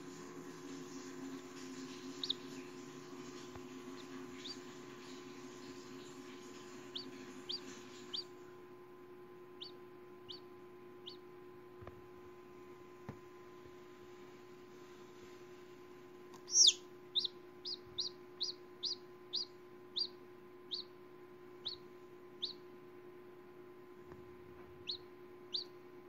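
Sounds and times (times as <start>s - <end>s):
faint steady hum: 0.0s - 26.0s
chick peeping: 0.2s - 8.3s, 9.6s - 11.3s, 16.4s - 20.9s, 21.6s - 22.7s, 24.7s - 25.8s.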